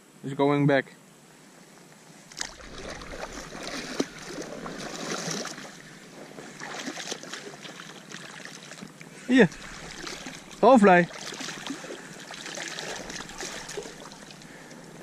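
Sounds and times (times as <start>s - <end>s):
water splashing against float tube: 2.3s - 14.9s.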